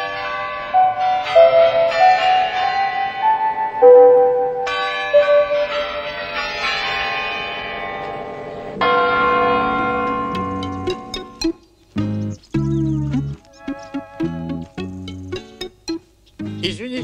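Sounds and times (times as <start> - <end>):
large clock tower bells ringing: 0.0 - 11.5.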